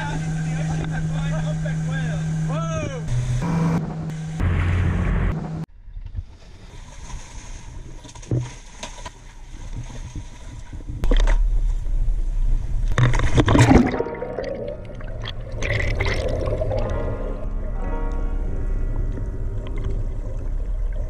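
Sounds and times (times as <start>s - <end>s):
boat engine rumble: 0.0s - 21.0s
water sloshing and splashing: 6.0s - 18.2s, 18.8s - 21.0s
loud splash: 13.3s - 17.4s.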